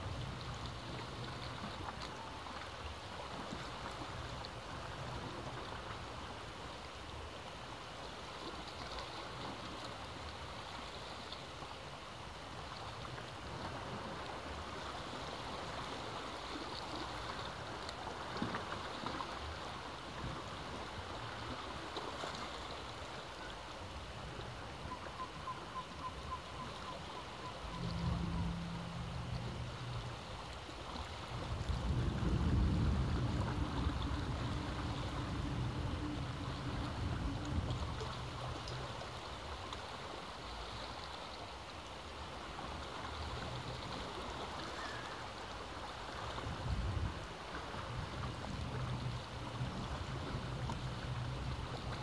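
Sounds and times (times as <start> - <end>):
sea waves washing against rocks: 0.0 - 52.0
low steady hum: 25.0 - 39.3.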